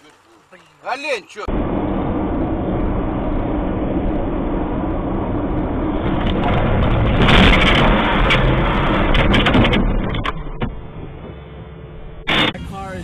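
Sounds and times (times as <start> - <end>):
car road and engine rumble: 0.0 - 13.0
loud crackling crash: 1.4 - 11.4.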